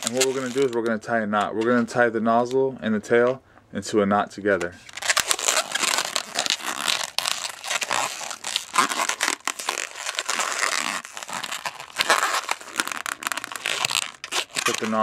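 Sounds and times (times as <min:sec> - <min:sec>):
balloon rubbing and crackling: 0:00.0 - 0:00.9, 0:04.6 - 0:15.0.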